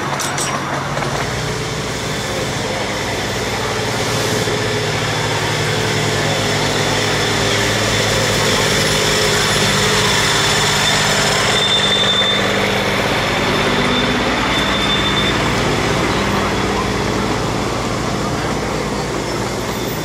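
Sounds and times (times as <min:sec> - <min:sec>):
small engine running: 0:01.0 - 0:20.0
brief high squeals: 0:10.0 - 0:12.8, 0:13.6 - 0:15.6.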